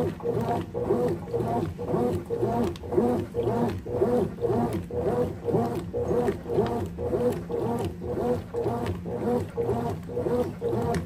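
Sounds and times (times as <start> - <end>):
washing machine agitating: 0.0 - 11.0.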